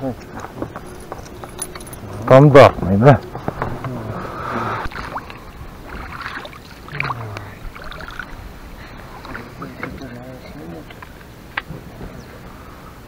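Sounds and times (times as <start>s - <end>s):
water against boat hull: 4.8s - 11.1s.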